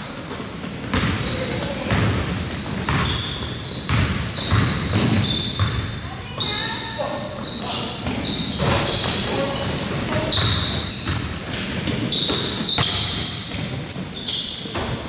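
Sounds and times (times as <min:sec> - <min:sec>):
players' voices in echoing hall: 0:00.0 - 0:15.0
sneakers squeaking on court: 0:00.0 - 0:15.0
basketball bouncing on hardwood: 0:00.8 - 0:01.3, 0:01.9 - 0:06.0, 0:08.0 - 0:13.9.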